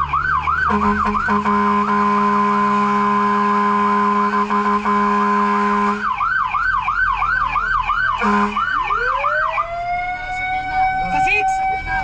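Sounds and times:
siren yelping: 0:00.0 - 0:01.7, 0:05.6 - 0:12.0
emergency vehicle horn: 0:00.0 - 0:12.0
siren wail: 0:00.0 - 0:12.0.

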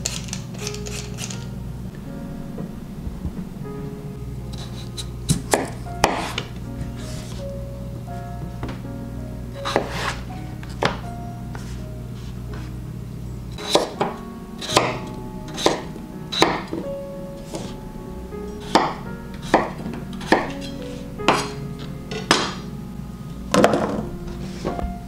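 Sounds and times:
knife chopping on wooden board: 0:13.6 - 0:13.9.

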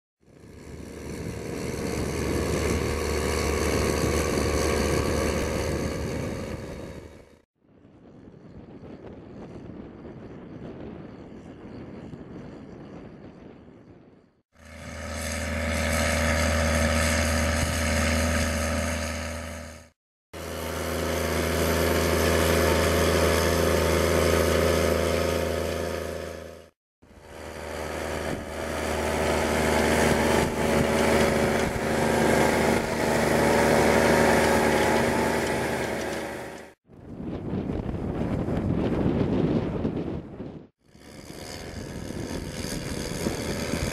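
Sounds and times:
tractor diesel engine running: 0:00.2 - 0:07.4, 0:14.6 - 0:36.8, 0:41.0 - 0:43.9.

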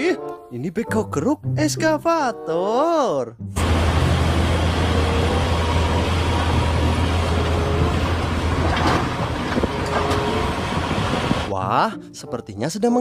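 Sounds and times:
excavator diesel engine humming: 0:03.6 - 0:11.5.

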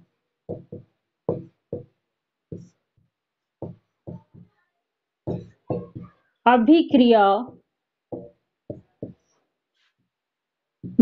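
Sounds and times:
marker writing on whiteboard: 0:00.5 - 0:04.6, 0:05.3 - 0:06.3, 0:07.5 - 0:10.0.

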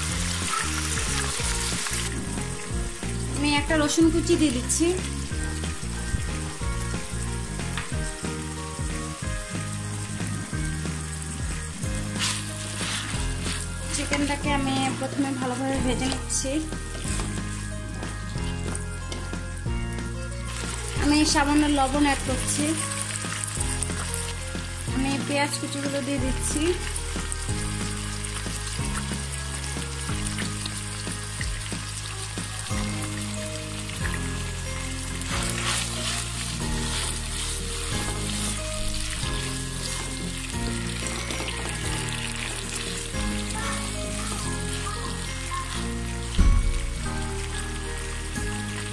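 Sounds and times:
background music: 0:00.0 - 0:48.9
food sizzling in hot oil: 0:00.0 - 0:48.9
soft background tune: 0:00.0 - 0:48.9.

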